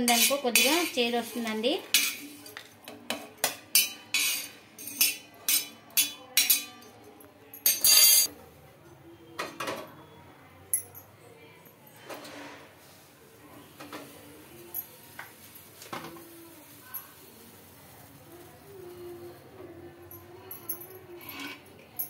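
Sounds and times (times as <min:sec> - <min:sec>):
steel spoon scraping a griddle pan: 0:00.0 - 0:02.6, 0:03.4 - 0:06.8.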